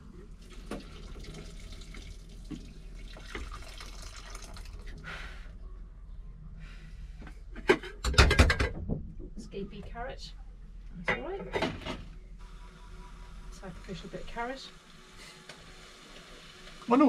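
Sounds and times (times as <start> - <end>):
tap water running into sink: 0.5 - 4.9.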